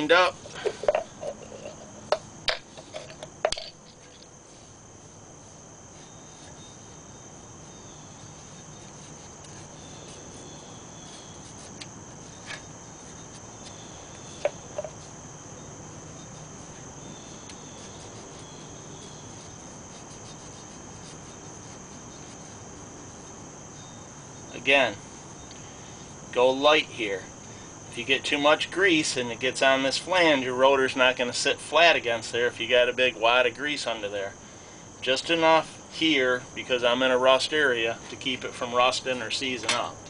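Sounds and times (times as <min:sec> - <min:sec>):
insects chirping chorus: 0:00.0 - 0:40.0.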